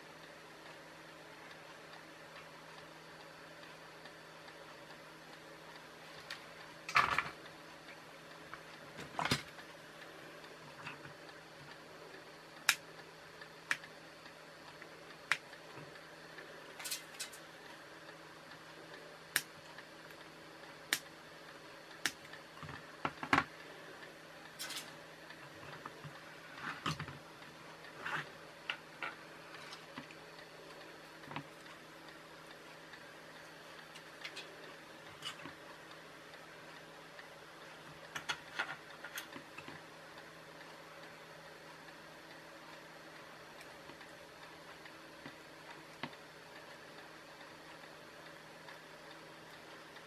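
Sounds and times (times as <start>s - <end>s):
faint steady hum: 0.0s - 50.0s
clicks and taps of components: 13.7s - 13.9s, 14.7s - 15.6s, 16.8s - 17.4s, 19.3s - 20.3s, 20.9s - 21.1s, 22.0s - 23.5s, 24.5s - 24.9s, 38.0s - 39.8s.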